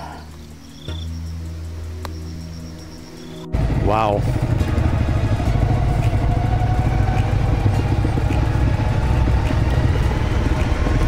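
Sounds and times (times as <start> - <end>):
motorcycle engine running: 3.5 - 11.0.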